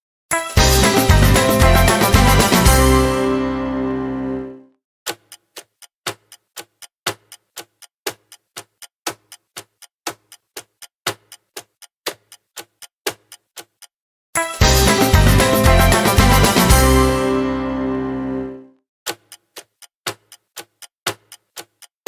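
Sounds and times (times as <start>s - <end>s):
background music: 0.3s - 4.7s, 14.4s - 18.8s
clock-like timer ticking: 5.1s - 16.8s, 19.1s - 22.0s.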